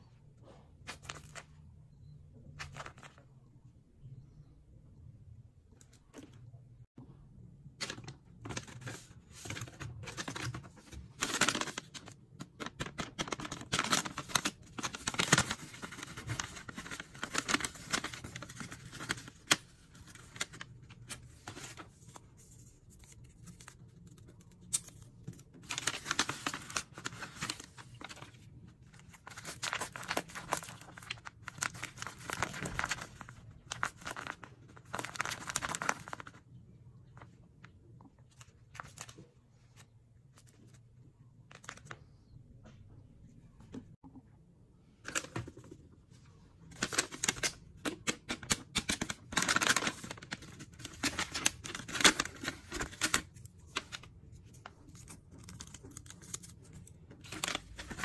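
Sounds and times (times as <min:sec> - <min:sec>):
paper and tape crinkling and tearing: 0:07.8 - 0:36.4, 0:48.3 - 0:58.0.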